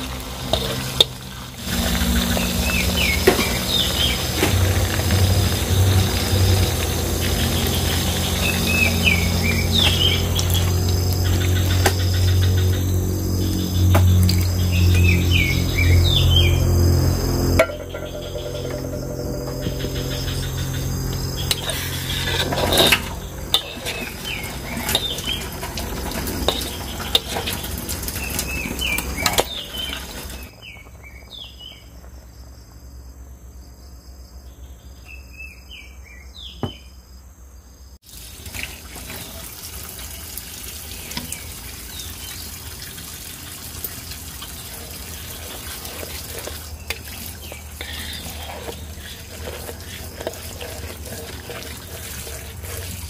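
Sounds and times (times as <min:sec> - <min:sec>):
sauce bubbling and sizzling in a wok: 0:00.0 - 0:15.9, 0:38.0 - 0:53.0
bird chirps: 0:17.6 - 0:22.4
metal spoon scraping a pan: 0:17.6 - 0:30.1, 0:44.6 - 0:53.0.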